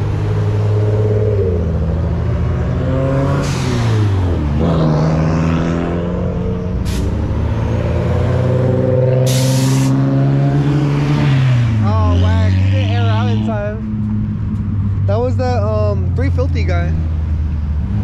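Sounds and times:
car engines at low revs: 0.0 - 18.0
air hissing: 9.3 - 10.0.

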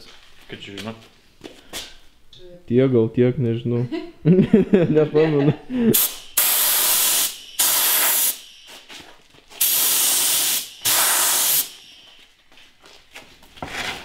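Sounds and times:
paint spray gun hissing: 5.9 - 8.5, 9.6 - 12.1.

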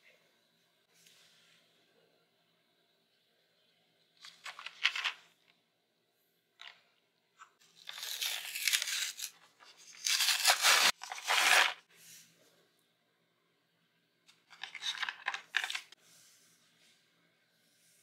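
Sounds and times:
paper and plastic wrapping crinkling: 7.8 - 11.8, 14.5 - 16.0.

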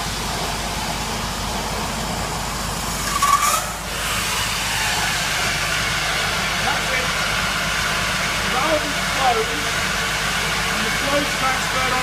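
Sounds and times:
water rushing through pipes: 2.4 - 12.0
rising squeak: 3.0 - 3.8.

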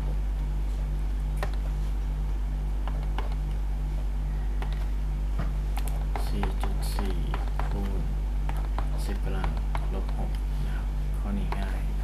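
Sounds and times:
electrical hum with pulsing buzz: 0.0 - 12.0
stylus tapping tablet screen: 1.4 - 1.8, 2.8 - 3.5, 4.5 - 10.5.

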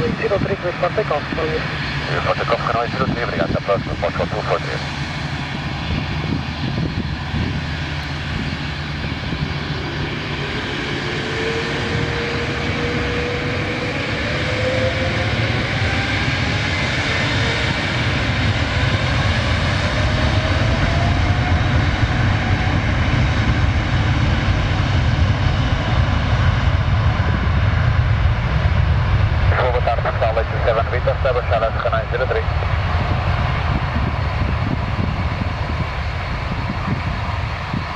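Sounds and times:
jet engines at takeoff thrust: 0.0 - 37.9
rising engine whine: 0.0 - 37.9.

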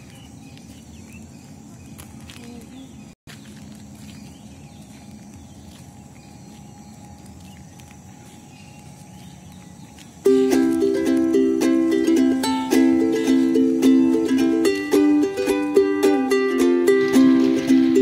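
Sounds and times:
faint outdoor ambience: 0.0 - 18.0
ukulele music: 10.2 - 18.0.

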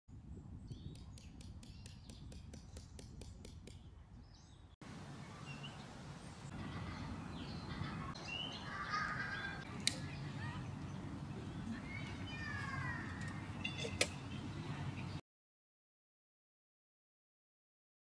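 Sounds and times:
birds chirping: 3.6 - 15.2.

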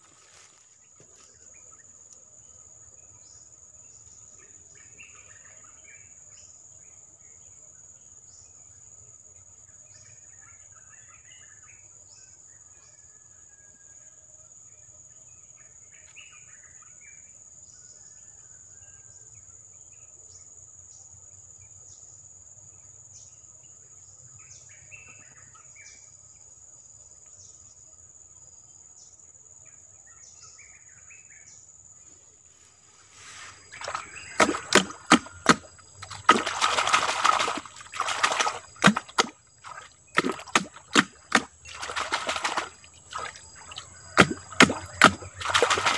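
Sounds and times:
high-pitched insect trill: 33.2 - 45.9
hand splashing in shallow water: 33.3 - 45.9.

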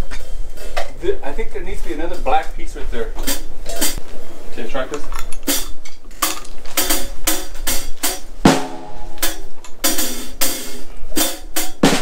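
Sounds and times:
drum kit playing a beat: 3.2 - 4.1, 5.4 - 12.0
cymbal strikes: 6.8 - 12.0
ringing drum hit: 8.1 - 10.4.

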